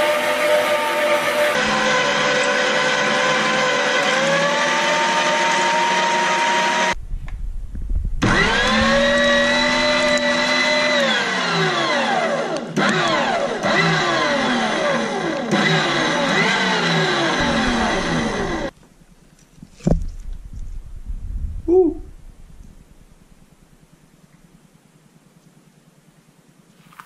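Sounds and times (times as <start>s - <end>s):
electric meat grinder whining: 0.0s - 7.0s, 8.2s - 18.7s.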